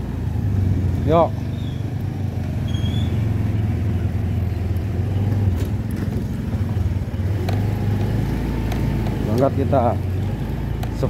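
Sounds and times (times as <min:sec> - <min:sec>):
motorcycle engine running: 0:00.0 - 0:11.0
sharp knocks on rough road: 0:04.8 - 0:11.0.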